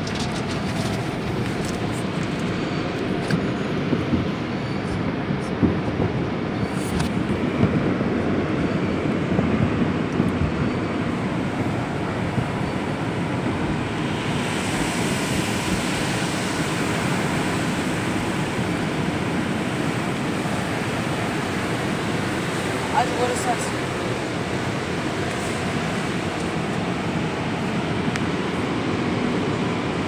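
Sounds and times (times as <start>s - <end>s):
car wash water rushing on car: 0.0s - 30.0s
water hissing across windshield: 11.1s - 30.0s.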